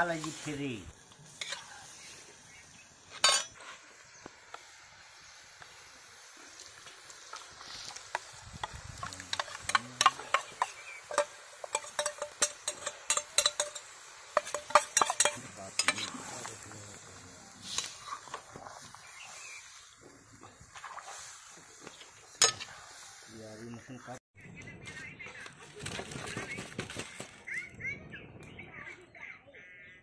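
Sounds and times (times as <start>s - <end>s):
metal spatula scraping a wok: 1.3s - 2.1s, 3.1s - 3.8s, 9.0s - 16.7s, 20.7s - 23.2s.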